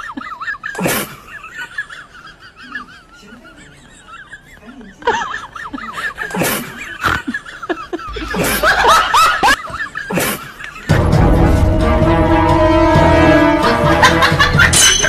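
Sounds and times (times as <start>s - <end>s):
snickering laughter: 0.0s - 11.2s, 13.9s - 15.0s
music: 10.9s - 15.0s.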